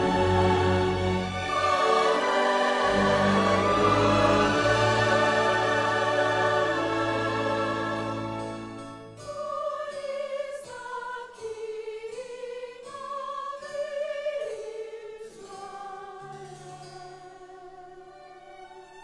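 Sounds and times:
slow classical-style melody: 0:00.0 - 0:10.4.

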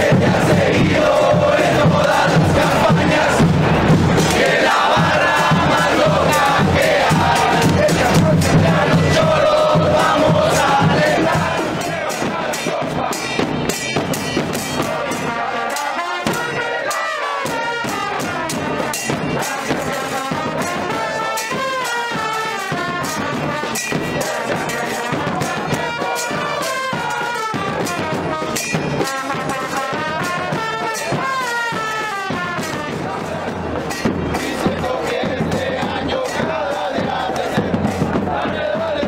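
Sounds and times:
trombones and trumpets: 0:00.0 - 0:13.8, 0:14.6 - 0:39.0
bass drum beats: 0:00.0 - 0:15.4, 0:32.1 - 0:39.0.

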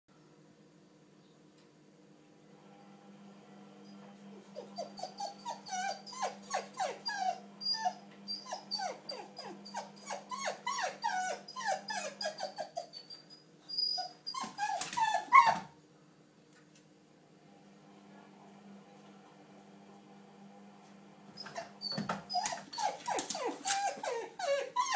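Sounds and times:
small dog whining: 0:04.5 - 0:15.7, 0:21.4 - 0:24.9
dog paws scraping door: 0:21.4 - 0:24.2.

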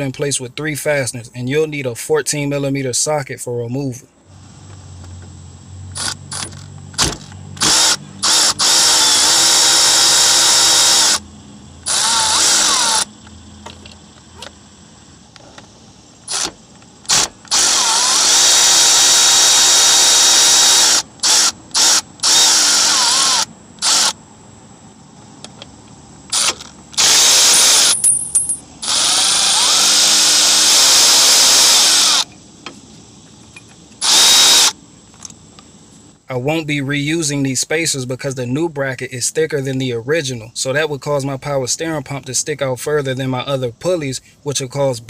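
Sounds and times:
power tool whining: 0:04.3 - 0:14.5, 0:16.2 - 0:24.2, 0:26.3 - 0:32.4, 0:33.5 - 0:34.8.

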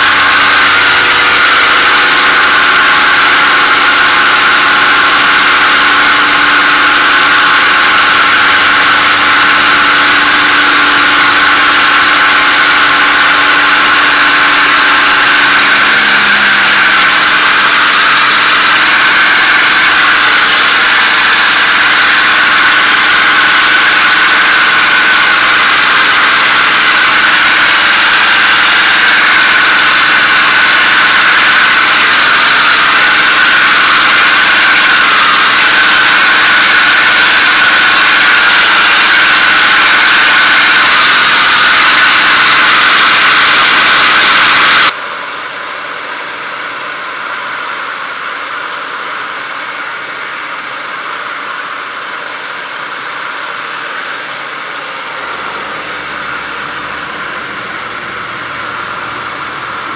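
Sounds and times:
airflow noise: 0:43.1 - 0:59.9.

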